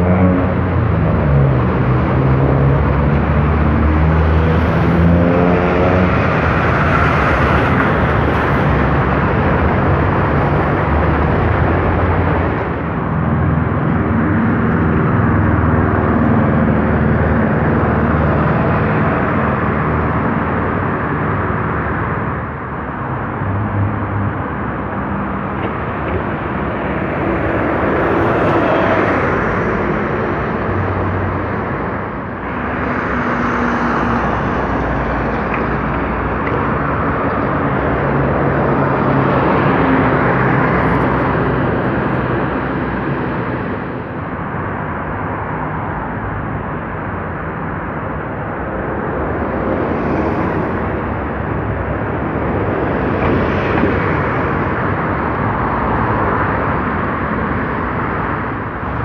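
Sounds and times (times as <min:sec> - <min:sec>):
bus engines droning past: 0:00.0 - 0:59.0
road traffic: 0:00.0 - 0:59.0.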